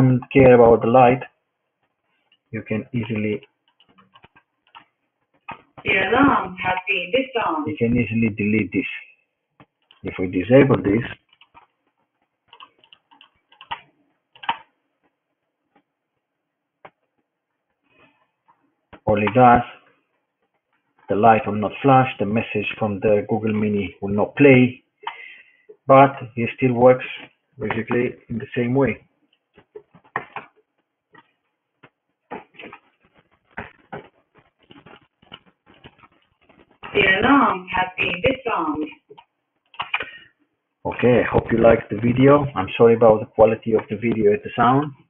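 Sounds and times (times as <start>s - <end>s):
computer clicking: 1.8s - 6.8s, 9.6s - 15.9s, 28.9s - 40.3s.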